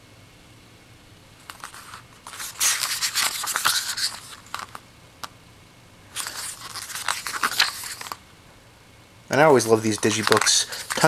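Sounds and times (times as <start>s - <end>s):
paper pages rustling: 1.4s - 4.8s, 6.1s - 8.2s, 9.5s - 11.0s.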